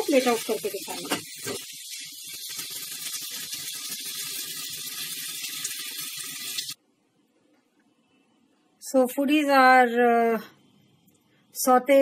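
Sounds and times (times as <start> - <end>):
vegetables sizzling in a pan: 0.0 - 6.8.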